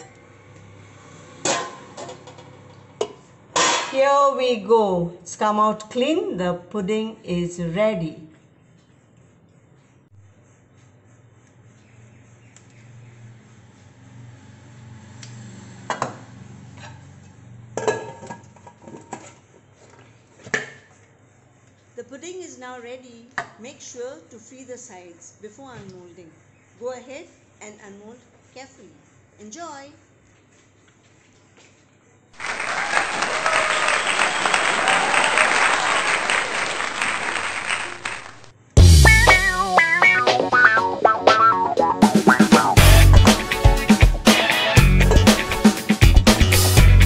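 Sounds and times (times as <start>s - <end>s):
crowd applause: 32.4s - 38.5s.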